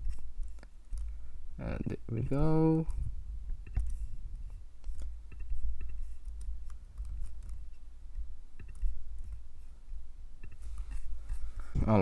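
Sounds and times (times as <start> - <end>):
low steady hum: 0.0 - 12.0
mouse and keyboard clicking: 4.8 - 7.7, 8.6 - 9.4, 10.4 - 11.0.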